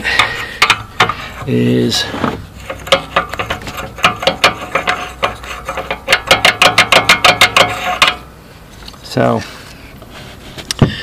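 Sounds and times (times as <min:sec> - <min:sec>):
pulley clicking and rattling on shaft: 0:02.6 - 0:08.2.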